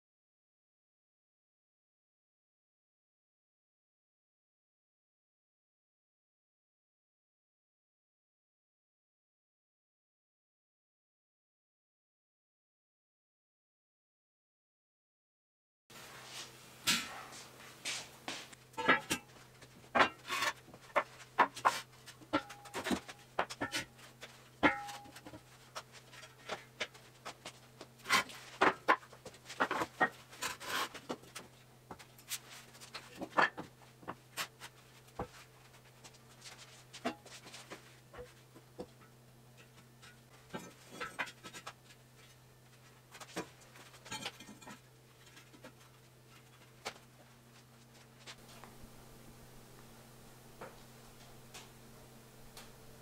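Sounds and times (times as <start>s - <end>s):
steady low hum: 15.9s - 53.0s.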